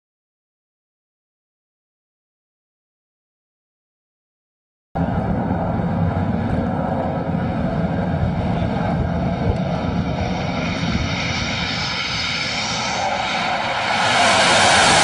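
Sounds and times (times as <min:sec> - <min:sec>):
jet engines hissing and whining: 0:05.0 - 0:15.0
wind rumbling on microphone: 0:05.0 - 0:15.0.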